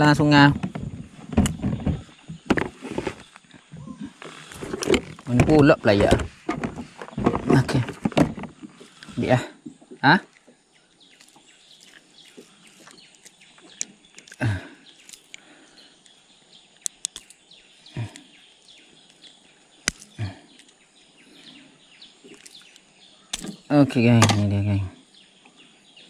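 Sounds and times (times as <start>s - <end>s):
birds chirping: 0.0s - 26.0s
outdoor background hiss: 0.0s - 26.0s
short thuds: 4.6s - 8.8s
sharp clicks: 16.8s - 17.4s.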